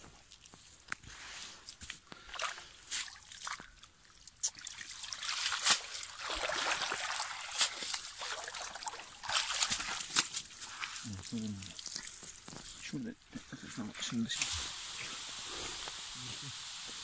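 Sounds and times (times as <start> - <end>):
water splashing: 2.3 - 12.7.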